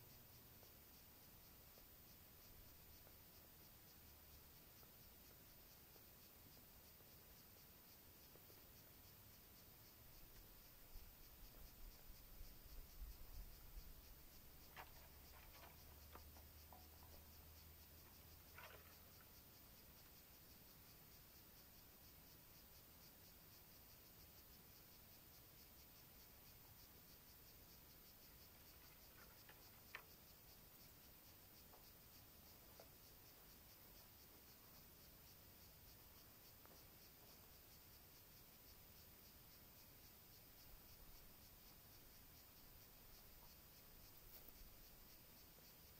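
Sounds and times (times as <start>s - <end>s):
faint high-pitched chirping: 0.0s - 45.9s.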